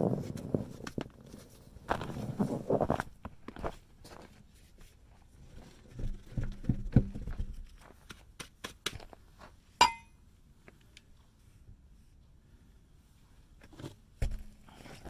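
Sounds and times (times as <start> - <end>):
sharp metallic clank: 9.8 - 10.1.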